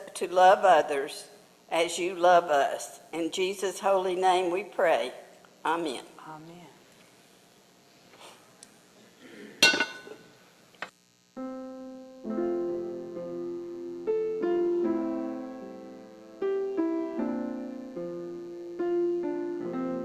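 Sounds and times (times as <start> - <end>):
slow piano chords: 11.4 - 20.0.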